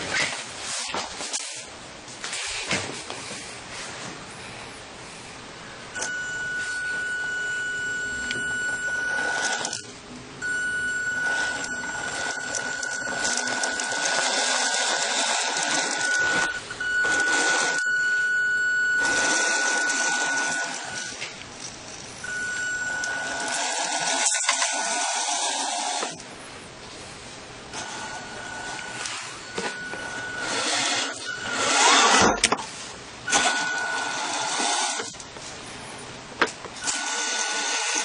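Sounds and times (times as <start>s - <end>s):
small electric motor whining: 6.0s - 21.2s, 22.2s - 26.2s, 27.8s - 32.5s, 33.3s - 35.2s, 36.8s - 38.0s
mechanical rasp: 11.0s - 18.0s, 27.8s - 32.5s, 36.8s - 38.0s.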